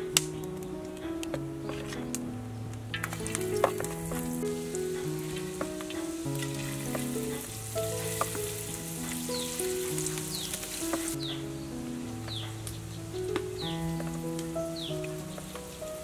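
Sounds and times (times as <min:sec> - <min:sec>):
soft background music: 0:00.0 - 0:16.0
food sizzling in hot oil: 0:03.0 - 0:11.2.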